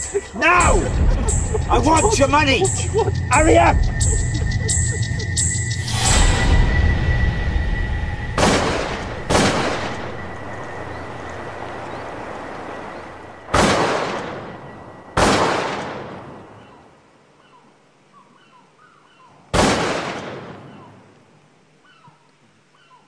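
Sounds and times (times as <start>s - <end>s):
shotgun blasts with echo: 15.2s - 16.3s, 19.6s - 20.8s
faint bird chirps: 16.4s - 19.4s, 21.8s - 23.0s.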